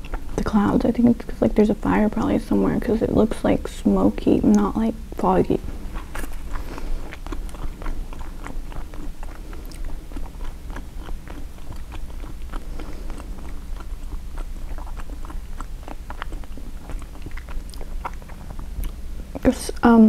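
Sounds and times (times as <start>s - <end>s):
chewing with wet mouth clicks: 0.0s - 0.5s, 4.2s - 4.8s, 5.6s - 19.4s.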